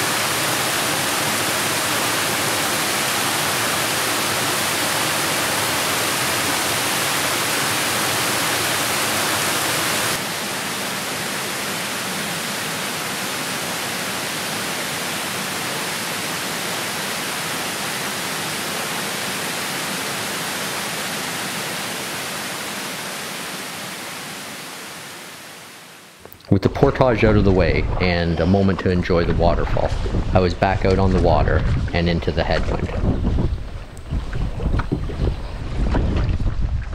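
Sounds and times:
waterfall rushing over rocks: 0.0 - 26.2.

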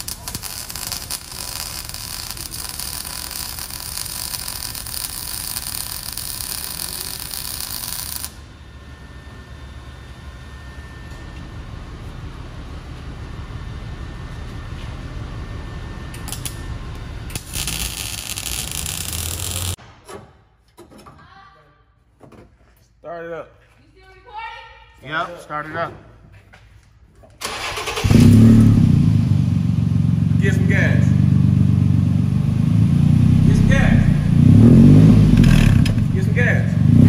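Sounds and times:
arc welding crackling hiss: 0.0 - 8.4, 17.3 - 19.8
workshop background noise: 0.0 - 9.5, 14.0 - 21.3.

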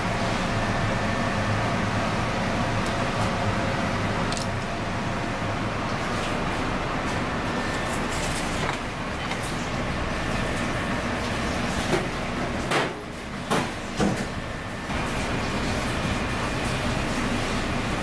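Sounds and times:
commercial kitchen rushing noise: 0.0 - 18.0.

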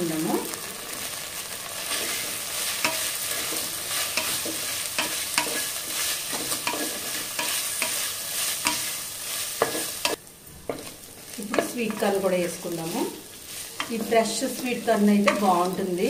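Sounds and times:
onions sizzling in oil: 0.0 - 16.0
spatula scraping metal pot: 1.9 - 8.9.

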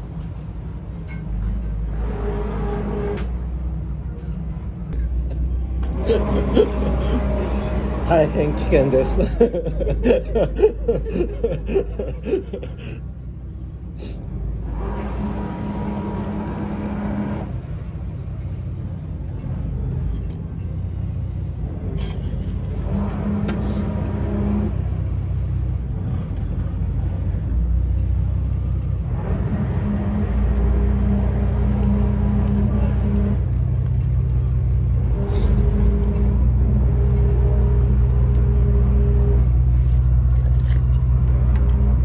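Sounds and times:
low hum: 0.0 - 42.0
low vehicle rumble: 0.0 - 42.0.

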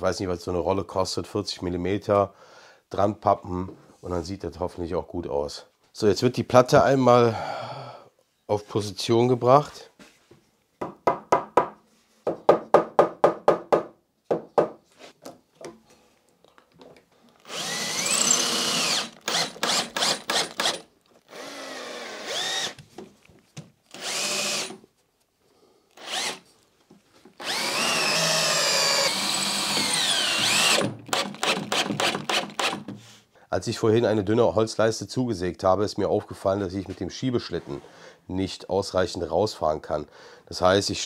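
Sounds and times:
cordless drill running: 17.4 - 22.8, 23.9 - 24.8, 25.9 - 26.5, 27.4 - 32.9.

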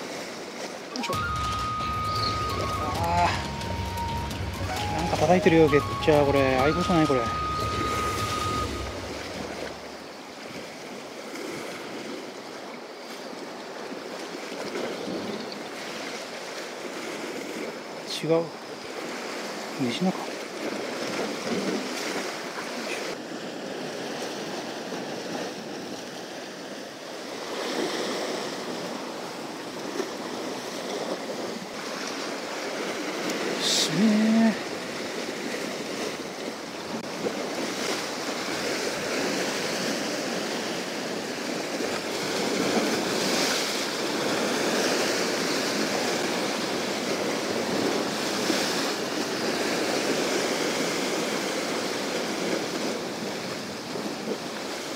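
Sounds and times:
short pitched sound: 1.0 - 9.4
surf breaking over rocks: 4.4 - 12.4, 13.9 - 54.9.

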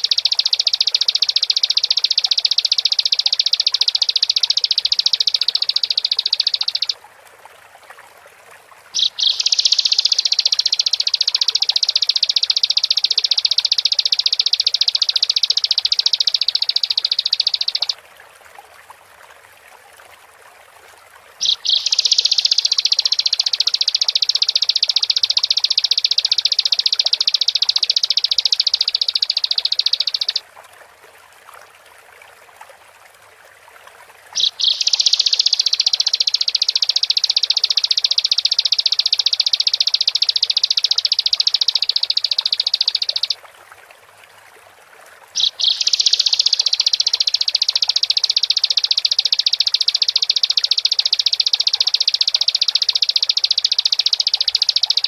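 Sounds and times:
bird singing rapid high trills: 0.0 - 7.0, 9.0 - 18.0, 21.4 - 30.4, 34.3 - 43.4, 45.4 - 55.0
sharp bird notes: 9.0 - 18.0, 21.4 - 30.4, 34.3 - 43.4, 45.4 - 55.0.

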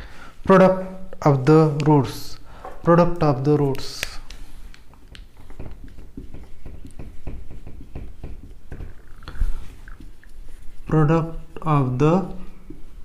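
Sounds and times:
marker writing on whiteboard: 2.8 - 10.9.

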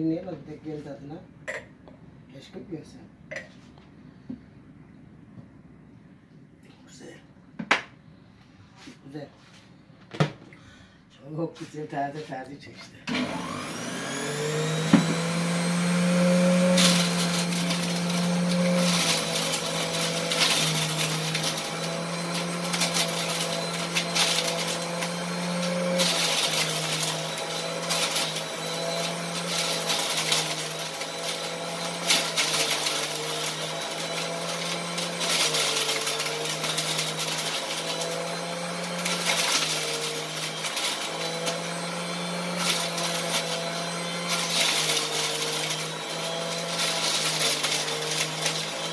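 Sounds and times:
electric juicer motor humming: 13.1 - 48.9
grinding of grapes: 13.2 - 48.9.

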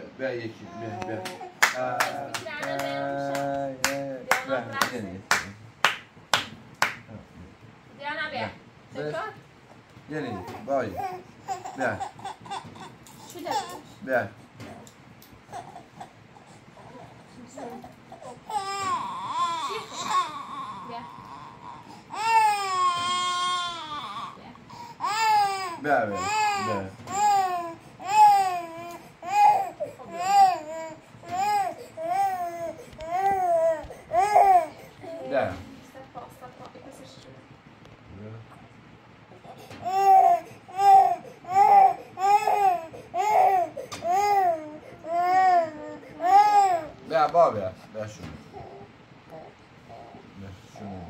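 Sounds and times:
toddler crying: 18.2 - 35.5, 39.8 - 47.0.

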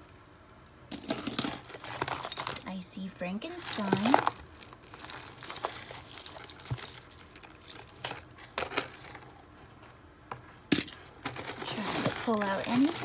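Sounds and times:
jewelry clinking and jangling: 0.9 - 2.7, 3.4 - 9.2, 10.8 - 13.0.

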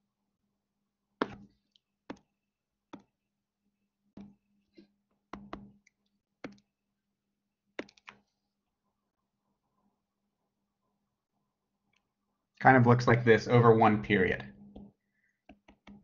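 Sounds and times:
stylus tapping on screen: 1.2 - 2.3, 4.1 - 4.4, 5.3 - 6.7, 7.8 - 8.2, 14.7 - 16.0.

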